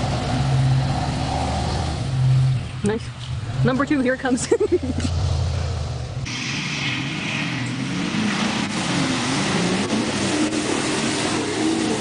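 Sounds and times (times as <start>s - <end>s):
truck engine revving under load: 0.0s - 3.9s, 4.6s - 12.0s
mud and water splattering: 6.3s - 12.0s.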